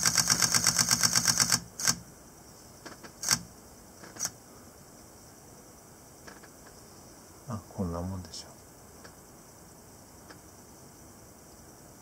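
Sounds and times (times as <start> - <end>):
camera shutter burst: 3.2 - 3.4.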